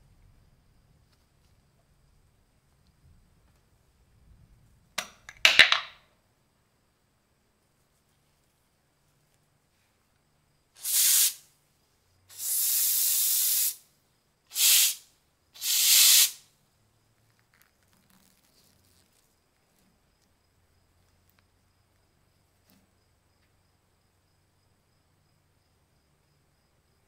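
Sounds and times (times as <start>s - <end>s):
aerosol spray hissing bursts: 10.8s - 11.5s, 12.3s - 13.8s, 14.5s - 16.4s.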